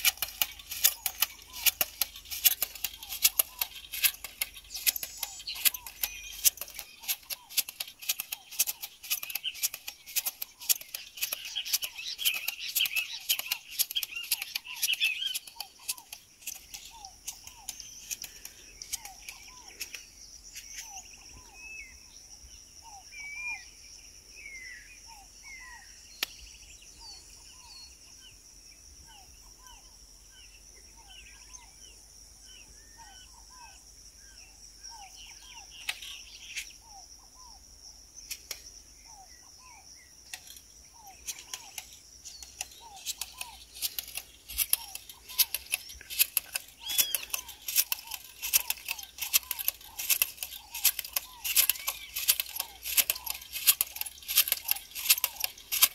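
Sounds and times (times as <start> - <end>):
sharp clicks: 0.0 - 21.0, 38.2 - 38.7, 40.2 - 55.9
birds chirping: 0.0 - 55.9.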